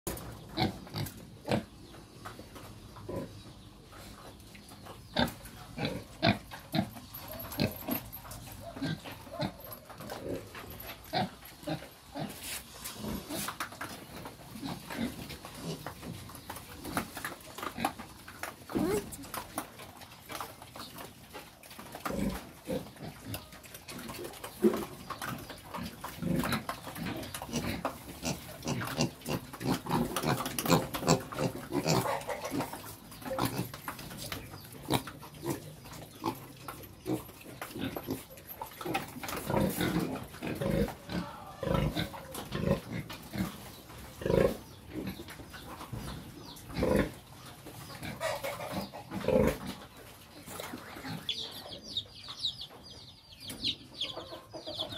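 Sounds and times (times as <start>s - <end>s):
young pigs grunting: 3.0s - 4.2s, 5.0s - 13.6s, 18.6s - 19.4s, 22.0s - 52.0s.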